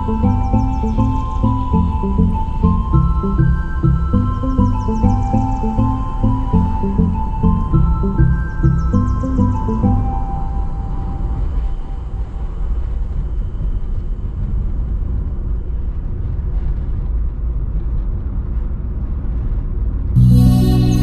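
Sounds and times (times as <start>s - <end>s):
car road noise: 0.0s - 10.8s
music: 0.0s - 12.4s, 20.2s - 21.0s.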